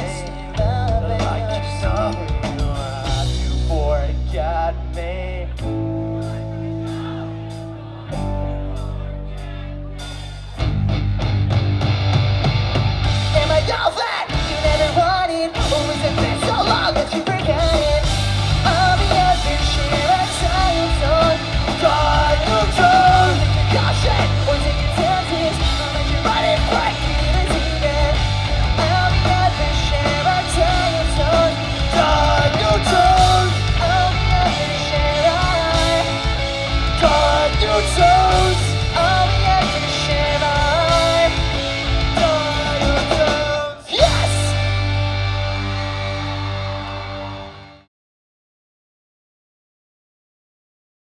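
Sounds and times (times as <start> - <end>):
bass guitar: 0.0 - 47.9
distorted electric guitars: 0.0 - 47.9
drums: 0.0 - 47.9
shouted singing: 6.2 - 10.6, 13.4 - 45.0.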